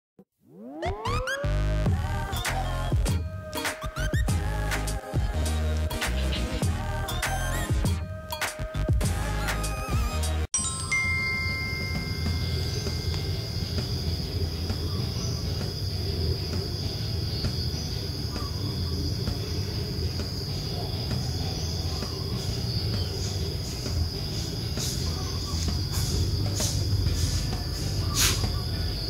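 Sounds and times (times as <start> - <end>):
high-pitched whine: 11.6 - 16.4.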